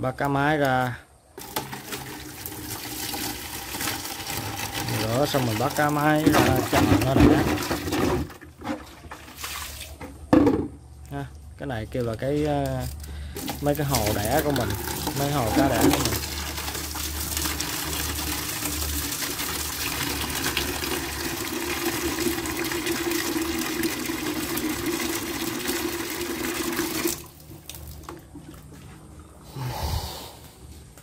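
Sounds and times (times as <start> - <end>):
water gushing into plastic bucket: 1.4 - 10.0, 13.3 - 29.4.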